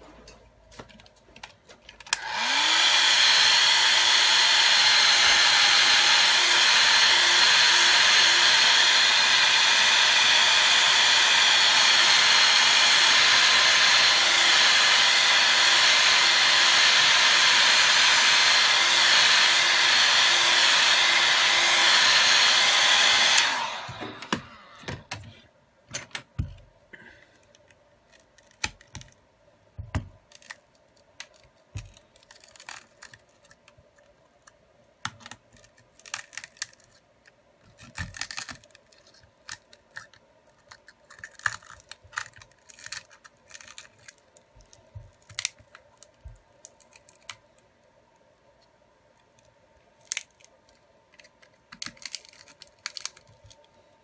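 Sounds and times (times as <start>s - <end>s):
hot-air blower running: 2.1s - 25.2s.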